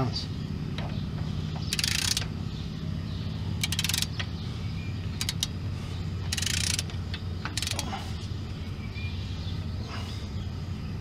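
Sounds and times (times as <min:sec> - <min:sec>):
steady low hum: 0:00.0 - 0:11.0
torque wrench ratchet clicking: 0:01.7 - 0:02.3, 0:03.6 - 0:04.3, 0:05.2 - 0:05.5, 0:06.3 - 0:07.9.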